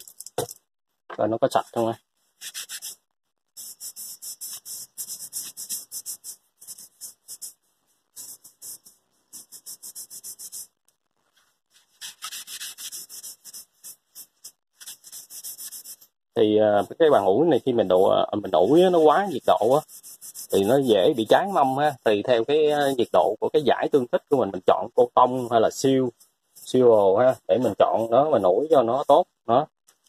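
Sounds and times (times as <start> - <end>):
scouring pad scrubbing metal: 17.8 - 21.9.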